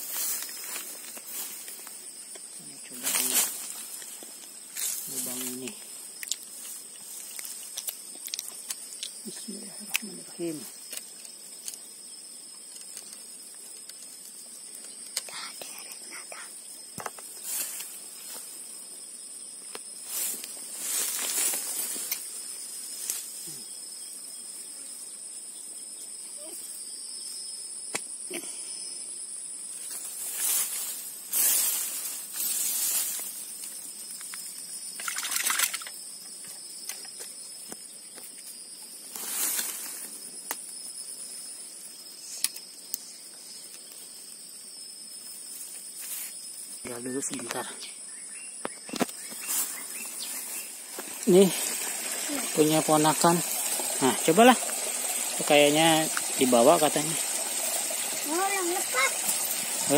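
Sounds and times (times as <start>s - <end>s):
grass rustling: 0.0s - 9.2s, 17.0s - 18.8s, 19.7s - 23.7s, 29.7s - 47.6s, 48.7s - 59.9s
insect chirring: 0.0s - 59.9s.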